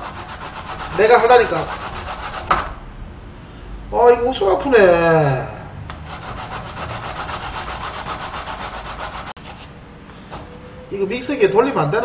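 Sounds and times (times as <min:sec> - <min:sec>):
potato grating on grater: 0:00.0 - 0:02.6, 0:06.1 - 0:09.7.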